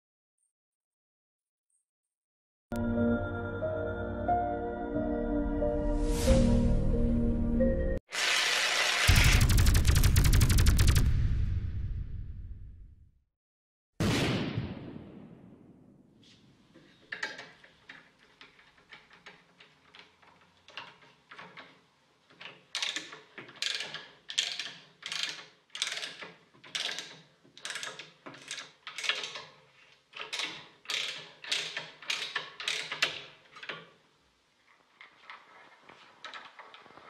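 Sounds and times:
tube cutter ratcheting: 17.1s - 33.9s.

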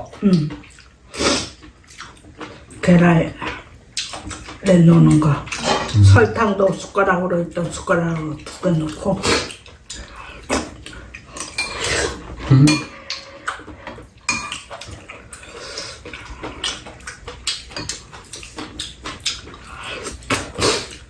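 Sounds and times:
cutlery clinking on ceramic bowls: 11.4s - 11.9s, 12.6s - 13.3s, 14.3s - 15.0s.

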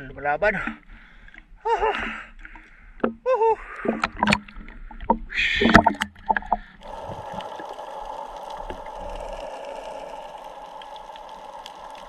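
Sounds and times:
water splashing and knocking: 3.9s - 7.7s
rush of water: 5.3s - 12.0s.

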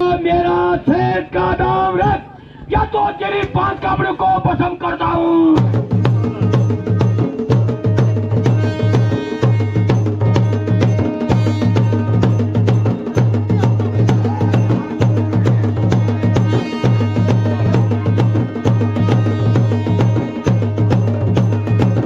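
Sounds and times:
rapid folk drumming: 3.2s - 22.0s.

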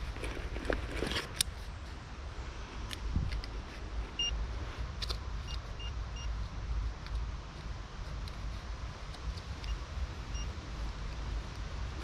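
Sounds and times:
metal detector beeps: 4.2s - 4.4s, 5.4s - 6.4s, 9.6s - 10.6s.

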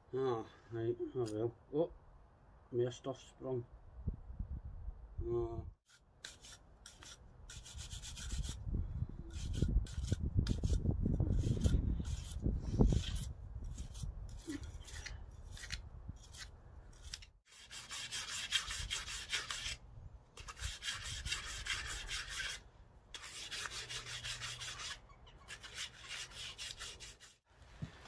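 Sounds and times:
brush scrubbing metal parts: 9.3s - 19.8s, 20.4s - 27.4s.

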